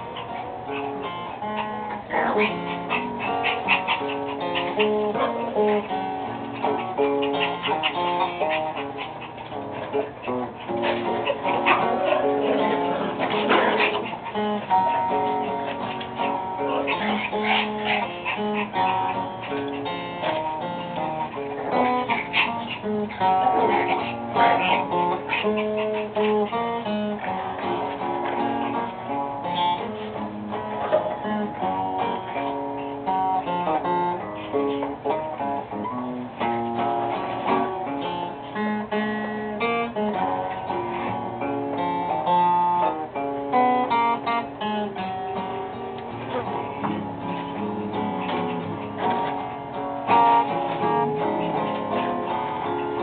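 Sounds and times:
guitar playing notes and chords: 0.0s - 53.0s.

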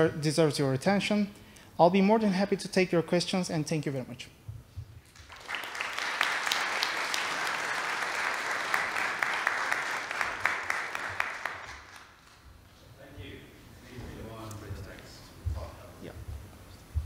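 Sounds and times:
audience applauding: 5.1s - 12.4s.

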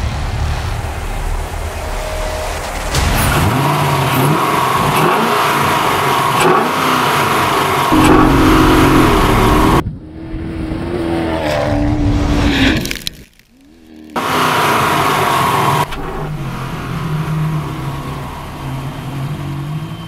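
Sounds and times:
racing car engine revving: 3.2s - 9.8s.

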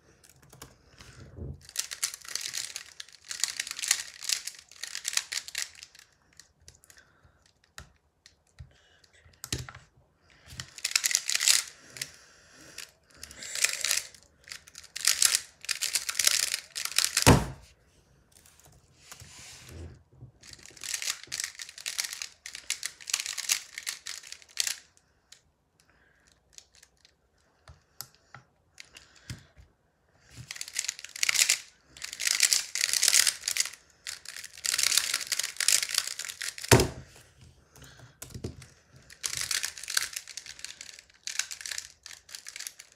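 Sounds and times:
plastic puzzle clicking: 0.2s - 8.7s, 10.5s - 12.1s, 13.6s - 17.3s, 20.4s - 24.8s, 30.4s - 37.1s, 37.8s - 42.9s.

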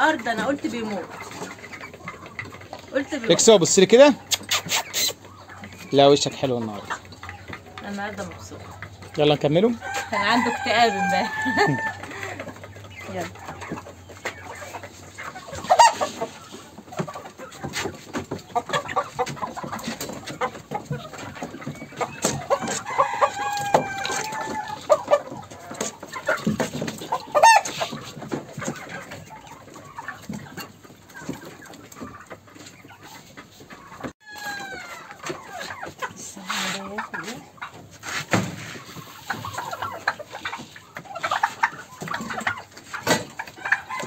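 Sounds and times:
chickens clucking: 0.0s - 44.0s
chicken squawks: 4.0s - 6.0s, 14.2s - 18.0s, 21.8s - 28.1s.

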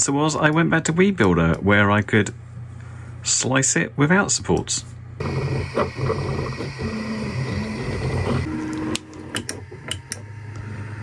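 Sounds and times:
printer hum: 5.2s - 11.0s
stepper motors whining: 5.2s - 11.0s.

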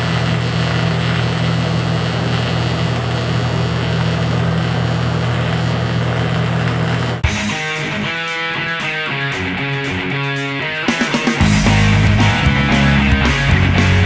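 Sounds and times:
welding arc buzzing and hissing: 0.0s - 8.0s.

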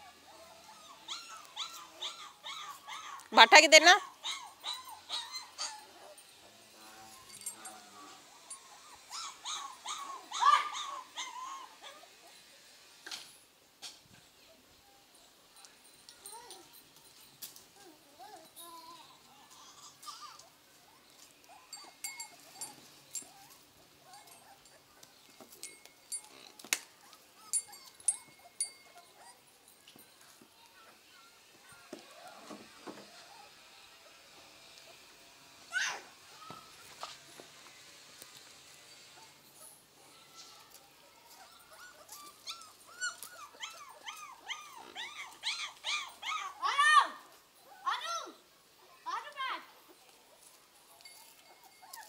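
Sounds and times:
puppies whimpering: 0.0s - 12.4s, 17.8s - 29.5s, 32.1s - 34.3s, 40.5s - 46.7s, 51.0s - 52.0s.

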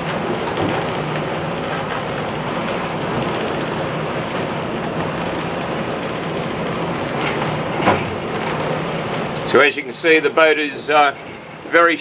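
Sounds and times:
wind and seas rushing: 0.0s - 11.7s.

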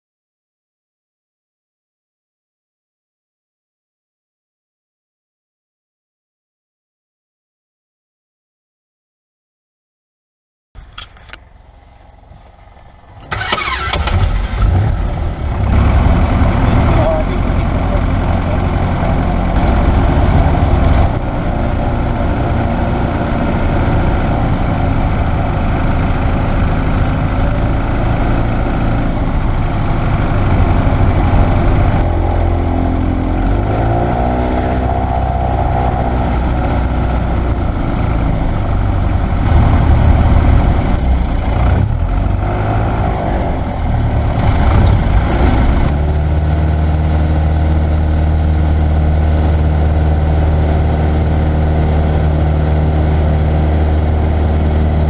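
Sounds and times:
small plane engine and propeller: 10.8s - 55.0s.

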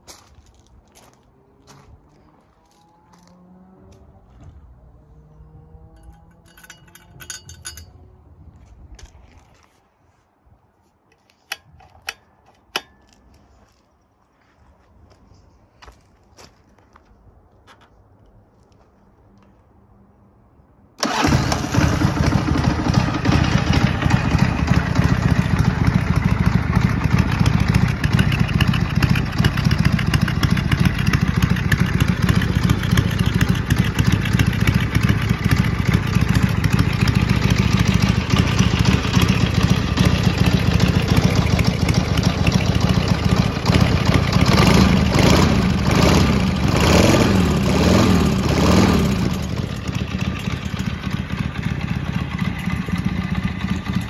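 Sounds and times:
motorcycle engine starting: 4.9s - 8.2s, 21.0s - 54.0s
motorcycle idling: 21.0s - 54.0s.

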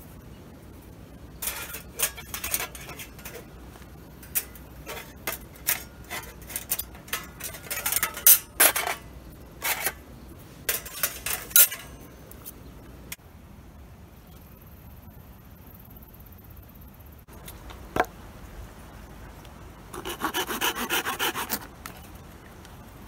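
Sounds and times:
metal panels clinking together: 1.4s - 3.5s, 4.2s - 10.0s, 10.7s - 12.1s.

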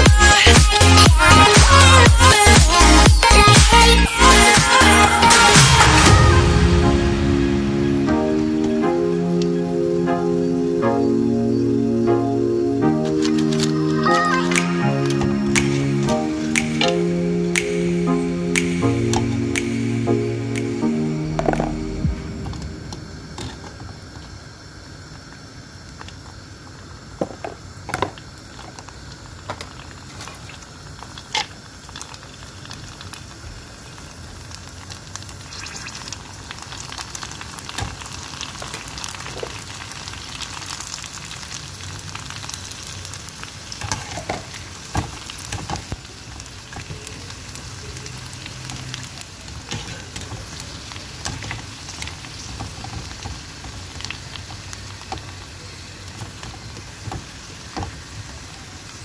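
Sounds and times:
dough sizzling in hot oil: 23.3s - 59.0s.

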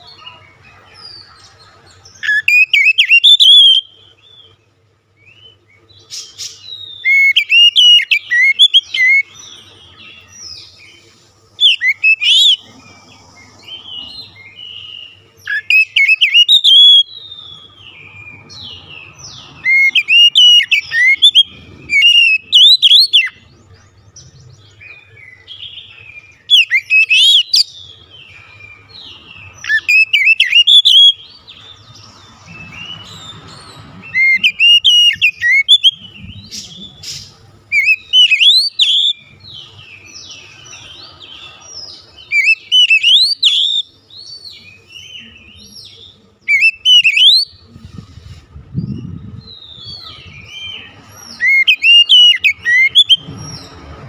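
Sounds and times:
bird singing whistled phrases: 2.2s - 4.0s, 6.5s - 9.3s, 11.6s - 12.6s, 14.6s - 23.4s, 26.4s - 27.8s, 29.6s - 31.3s, 34.1s - 39.3s, 42.3s - 43.9s, 46.5s - 47.6s, 49.4s - 53.3s.

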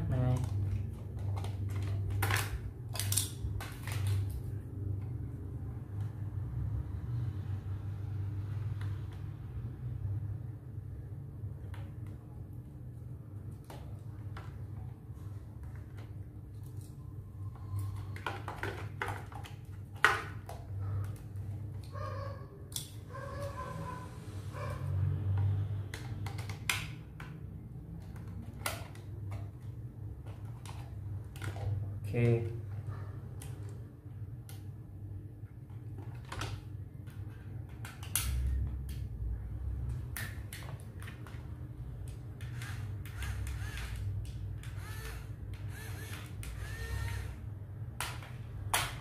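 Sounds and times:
plastic parts clicking and tapping: 0.3s - 4.4s, 17.6s - 21.9s, 25.3s - 31.8s, 35.7s - 39.1s, 48.0s - 49.0s
plastic toy clicks and knocks: 17.9s - 21.2s, 25.3s - 27.4s, 36.0s - 39.0s, 39.9s - 47.4s, 48.0s - 49.0s.

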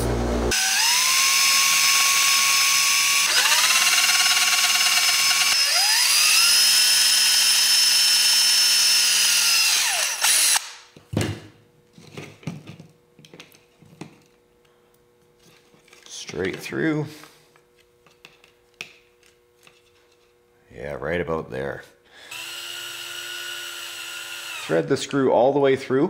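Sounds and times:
power drill boring through plastic: 0.5s - 10.8s, 22.2s - 24.8s.

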